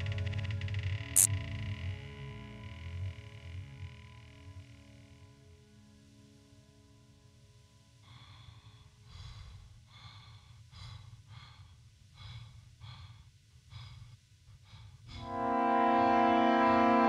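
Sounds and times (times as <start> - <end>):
person breathing hard: 8.0 - 15.5
brass-like chord: 15.3 - 17.0.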